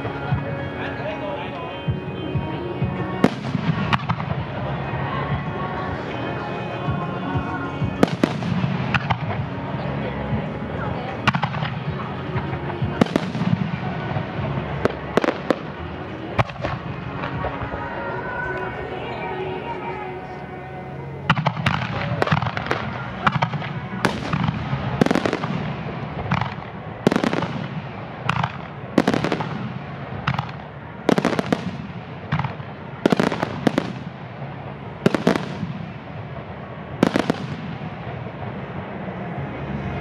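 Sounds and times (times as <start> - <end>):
fireworks bursting with sharp bangs: 0.0 - 20.1, 21.2 - 40.0
smaller firework cracks: 11.2 - 17.9, 21.3 - 38.5.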